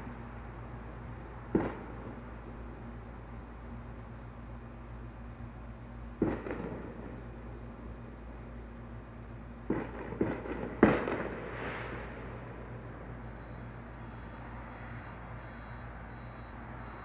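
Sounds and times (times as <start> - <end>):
fireworks bangs: 1.5 - 2.0, 6.2 - 7.2, 9.7 - 13.2.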